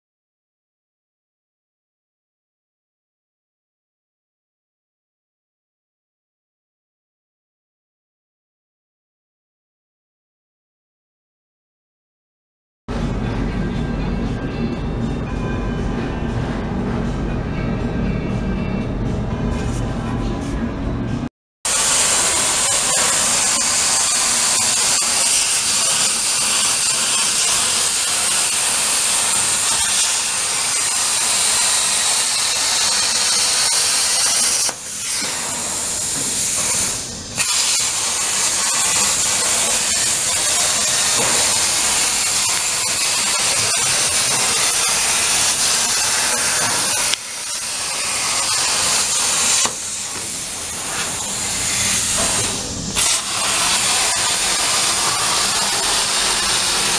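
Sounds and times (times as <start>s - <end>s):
plasma torch hissing: 21.7s - 56.9s.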